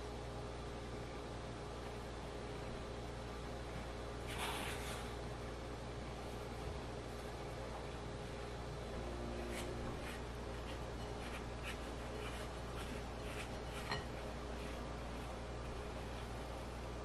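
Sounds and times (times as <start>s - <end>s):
low steady hum: 0.0s - 17.0s
spatula scraping dough in glass bowl: 9.5s - 16.2s.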